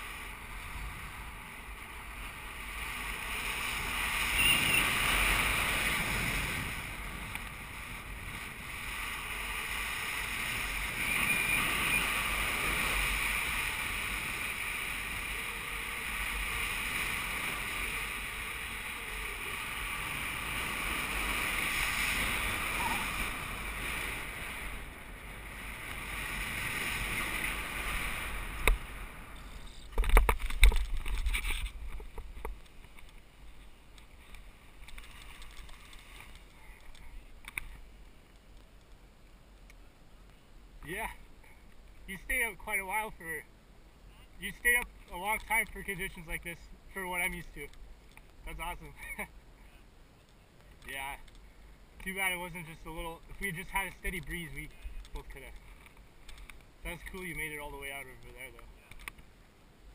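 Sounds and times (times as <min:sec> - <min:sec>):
wind rushing over microphone: 0:00.0 - 0:32.6.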